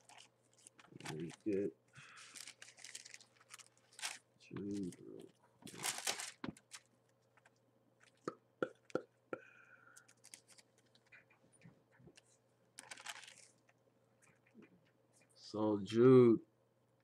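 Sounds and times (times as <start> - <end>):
book pages rustling: 0.0 - 1.6, 2.2 - 8.2, 10.1 - 11.2, 12.1 - 14.5.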